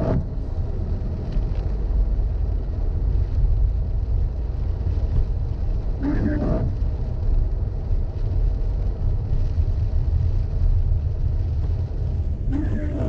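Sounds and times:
car driving on wet road: 0.0 - 13.0.

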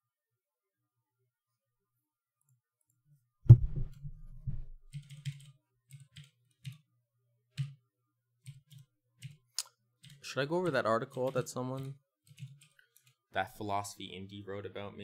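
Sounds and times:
loud thump: 3.5 - 4.7.

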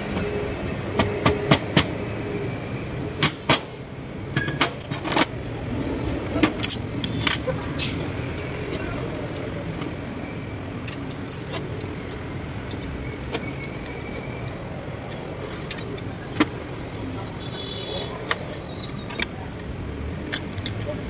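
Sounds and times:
metal parts clinking on workbench: 6.4 - 9.9, 10.6 - 16.5, 20.3 - 21.0.

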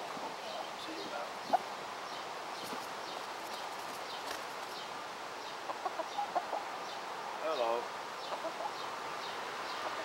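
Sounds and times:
faint background hiss: 0.0 - 10.0
chicken clucking: 5.6 - 6.7, 8.2 - 8.9, 9.7 - 10.0.

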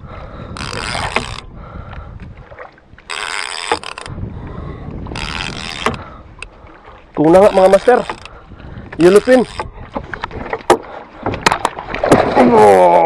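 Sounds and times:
wind and boat rumble: 0.0 - 13.0
fishing reel whirring: 0.6 - 1.5, 3.1 - 4.2, 5.1 - 6.5, 7.4 - 8.4, 9.0 - 9.7.

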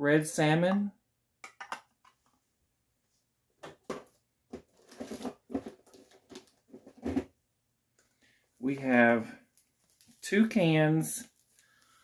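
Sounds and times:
metal cans knocking and clunking: 1.4 - 2.2
groceries rustling: 4.6 - 7.2, 8.1 - 12.0.

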